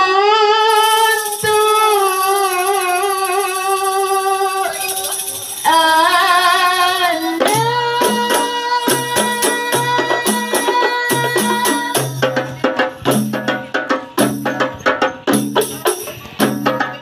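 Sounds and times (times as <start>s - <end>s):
frame drums beating: 7.2s - 17.0s.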